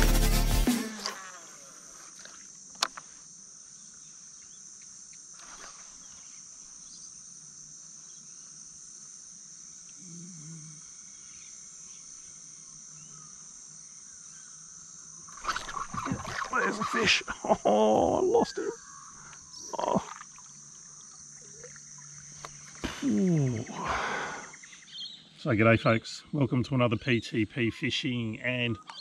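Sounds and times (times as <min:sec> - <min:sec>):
insects chorus: 0:00.6 - 0:29.0
fish splashing: 0:15.3 - 0:17.2, 0:19.8 - 0:20.6.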